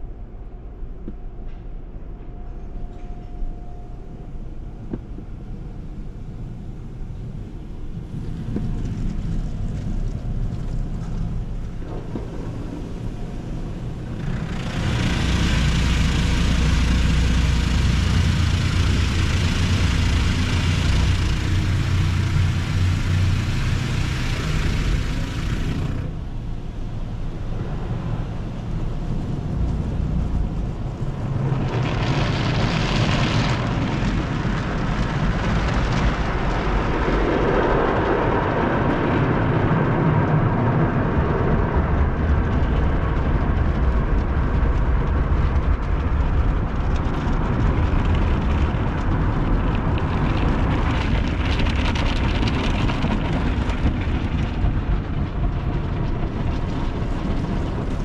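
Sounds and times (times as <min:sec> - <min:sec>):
car wash machinery rumble: 0:03.7 - 0:58.0
water spraying on car: 0:08.1 - 0:26.2, 0:27.4 - 0:36.6.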